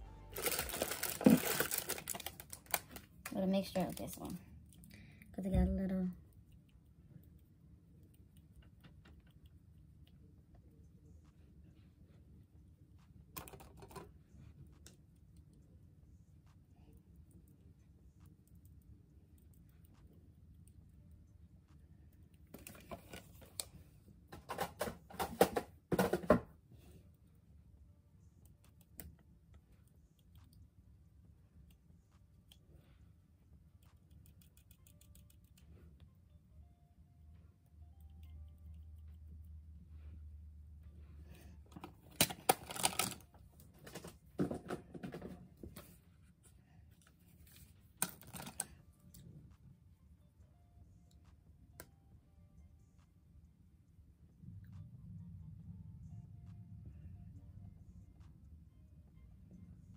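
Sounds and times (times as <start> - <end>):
plastic cases clicking and clattering: 0.4 - 2.9, 24.4 - 26.4, 41.8 - 43.2.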